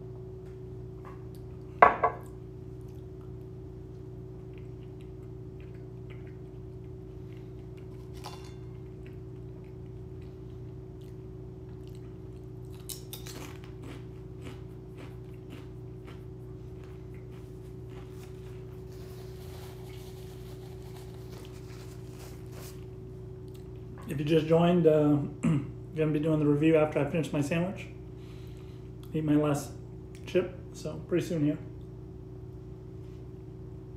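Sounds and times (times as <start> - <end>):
steady low hum: 0.0 - 33.9
person chewing and crunching: 4.3 - 22.8
clicks and crackles of food: 4.4 - 22.8.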